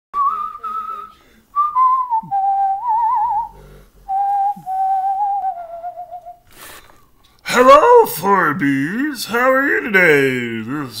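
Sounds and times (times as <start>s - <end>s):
person whistling a tune: 0.2s - 6.4s.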